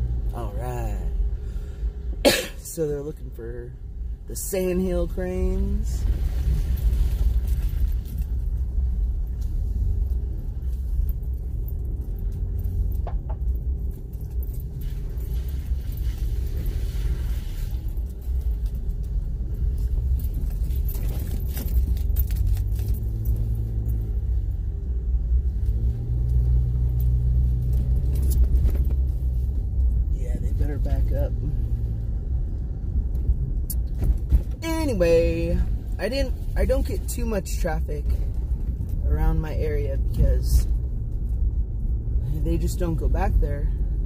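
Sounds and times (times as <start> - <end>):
car engine and tyres rumbling: 0.0 - 44.0
light rattles: 6.1 - 32.0.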